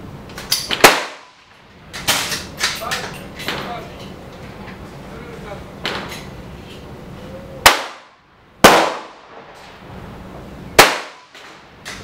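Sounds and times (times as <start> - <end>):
gunshots with echo: 0.8 - 1.3, 7.6 - 9.4, 10.8 - 11.3.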